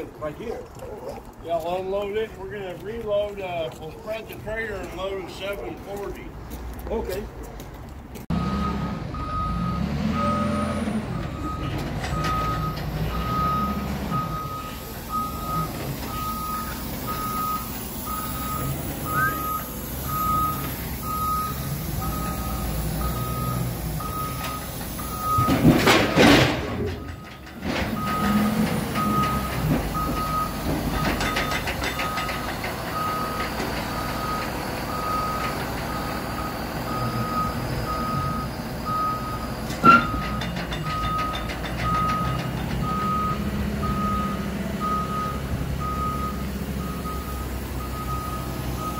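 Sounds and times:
reverse alarm beeping: 8.3s - 26.3s, 28.0s - 32.4s, 33.0s - 48.9s
diesel engine running: 8.3s - 48.9s.

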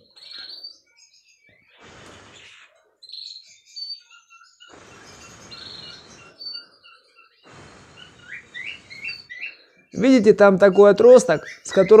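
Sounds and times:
canaries chirping: 0.0s - 12.0s
breath blown into microphone: 7.4s - 9.3s.

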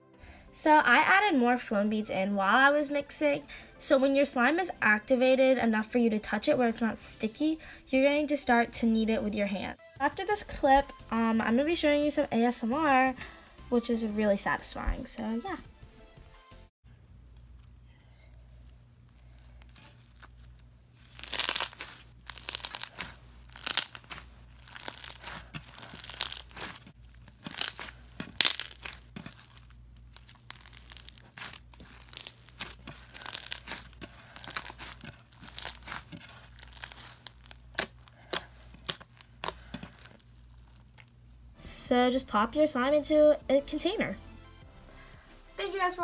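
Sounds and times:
foam bead slime crackling: 18.2s - 41.6s.

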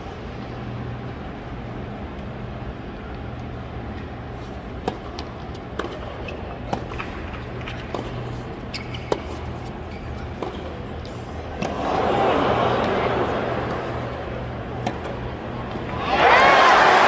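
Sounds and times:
hushed crowd hum: 0.0s - 17.0s
racket striking tennis ball: 14.7s - 15.9s.

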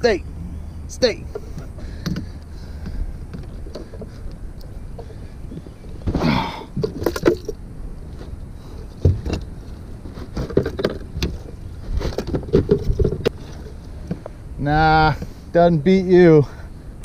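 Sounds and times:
fish and hooks rattling on deck: 6.8s - 7.6s, 10.3s - 13.8s.

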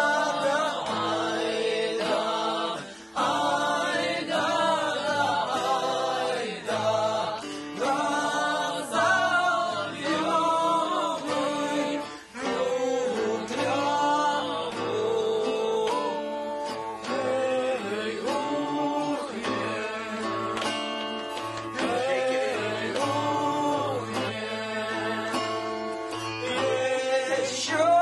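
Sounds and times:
group of people singing: 0.0s - 28.0s
breaths between phrases: 2.8s - 3.2s.

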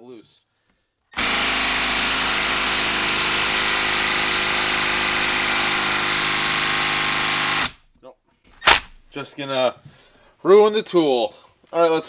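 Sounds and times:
impact driver hammering: 1.2s - 7.8s, 8.6s - 9.1s.

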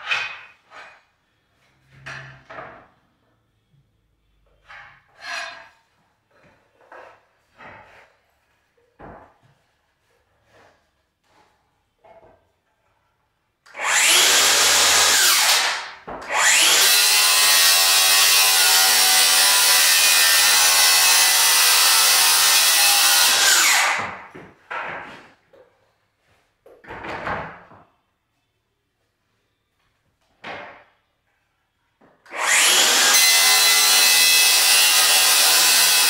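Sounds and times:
circular saw cutting flooring: 13.7s - 24.3s, 32.3s - 36.0s.

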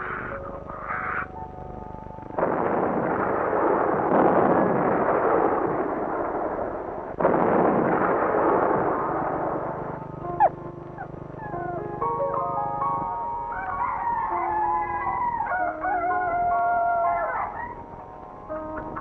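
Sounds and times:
held musical notes: 0.0s - 4.1s, 8.7s - 19.0s
loud steady rushing roar: 0.0s - 15.9s.

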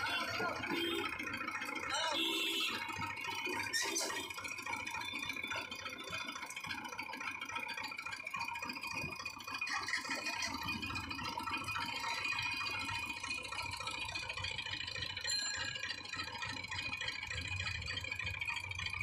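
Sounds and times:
juice crusher machine buzzing: 0.0s - 19.0s.

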